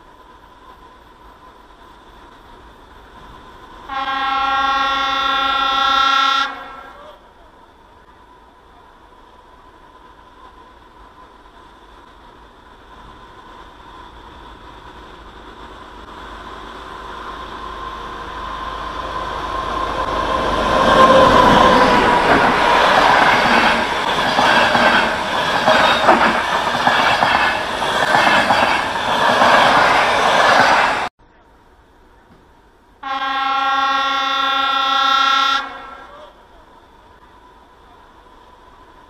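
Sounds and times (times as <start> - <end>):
passing train rumble: 0.0 - 39.0
wheels clacking over rail joints: 9.9 - 31.1.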